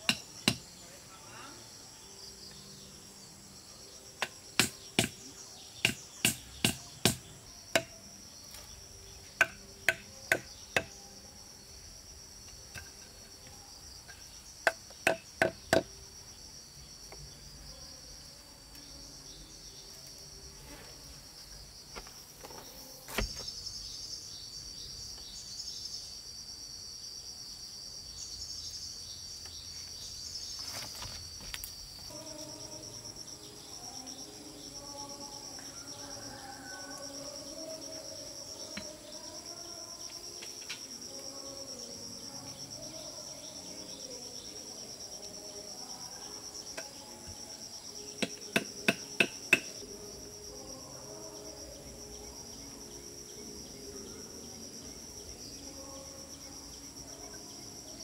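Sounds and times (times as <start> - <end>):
insects chirring: 0.0 - 58.0.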